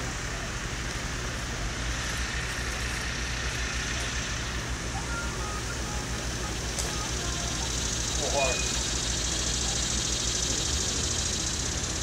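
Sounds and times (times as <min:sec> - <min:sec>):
engine running low hum: 0:00.0 - 0:12.0.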